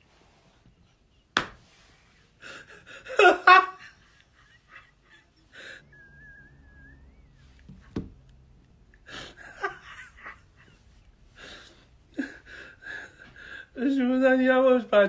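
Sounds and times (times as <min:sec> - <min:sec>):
man laughing hard: 0:02.4 - 0:06.6, 0:09.1 - 0:10.8.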